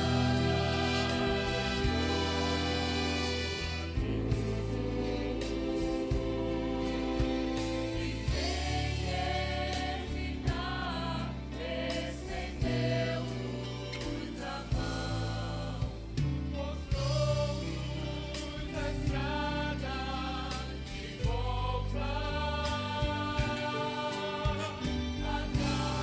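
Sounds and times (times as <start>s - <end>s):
low bass line: 0.0s - 13.9s
instrumental accompaniment: 0.0s - 26.0s
women singing gospel in harmony: 0.0s - 26.0s.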